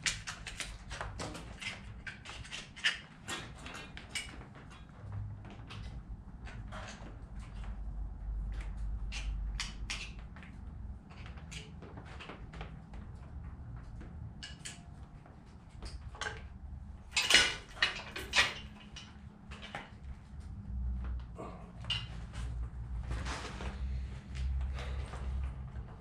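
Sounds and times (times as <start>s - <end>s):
tools and metal parts clinking: 14.4s - 14.9s, 15.9s - 19.9s, 21.8s - 22.2s
metal clanks: 17.1s - 19.9s.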